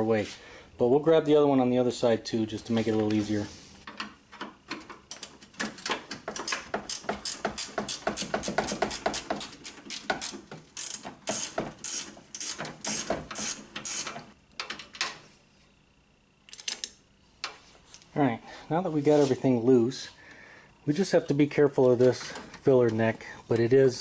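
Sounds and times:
ratchet wrench clicking: 6.4 - 14.2.

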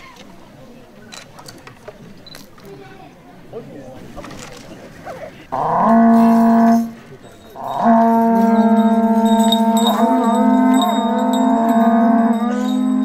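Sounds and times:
conch-shell trumpets blowing: 5.5 - 13.0.

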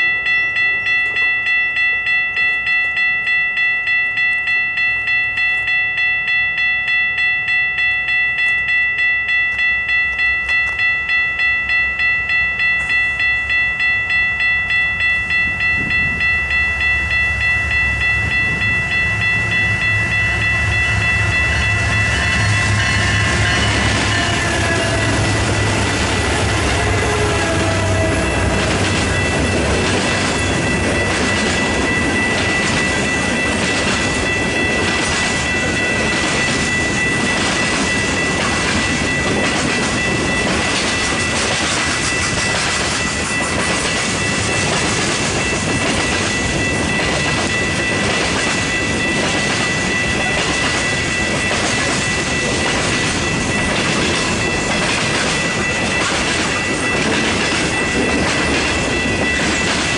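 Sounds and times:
diesel locomotive engine rumble: 0.0 - 59.9
railroad crossing bell ringing: 0.0 - 59.9
train wheel noise: 0.0 - 59.9.

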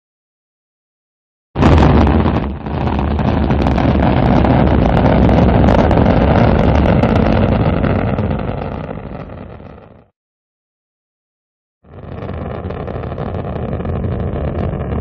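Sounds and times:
rocket engine rumble: 1.6 - 10.1, 11.9 - 15.0.

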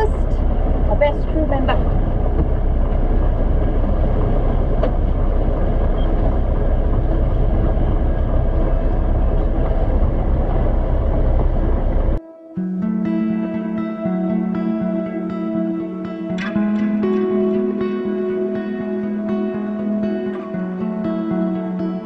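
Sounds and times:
boat engine rumble: 0.0 - 12.2
soft guitar music: 0.0 - 22.0.

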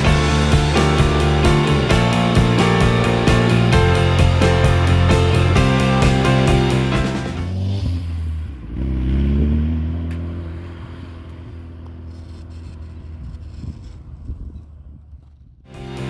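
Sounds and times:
car engine accelerating past: 6.6 - 13.4.

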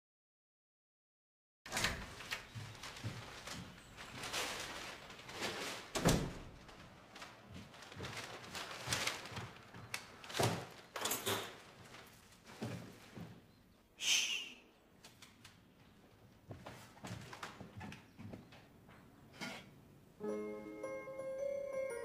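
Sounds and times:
door shutting with a thud: 6.0 - 6.6
man shushing: 14.0 - 14.7.

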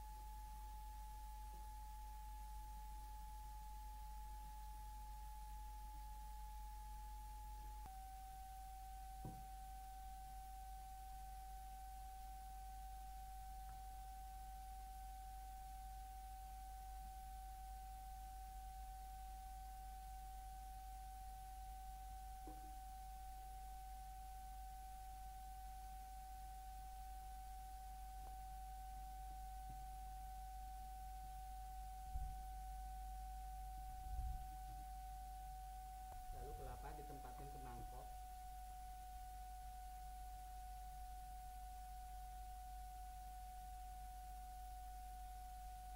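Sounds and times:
faint steady pure tone: 0.0 - 45.9
low hum: 26.7 - 45.9.

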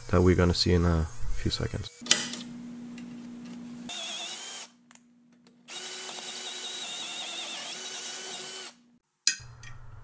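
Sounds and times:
cordless drill drilling into steel: 3.9 - 4.8, 5.7 - 8.8.

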